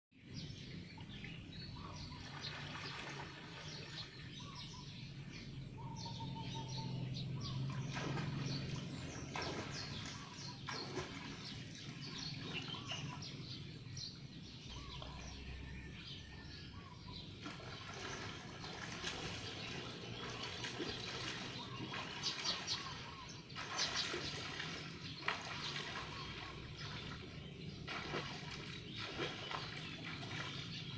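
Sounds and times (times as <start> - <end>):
small birds chirping: 0.2 - 30.9
swimmer splashing water: 1.2 - 5.4, 6.1 - 15.5, 17.2 - 30.9.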